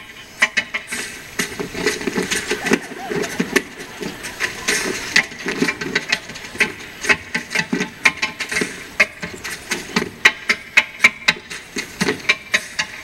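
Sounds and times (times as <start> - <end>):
murmur of audience voices: 0.0 - 10.2.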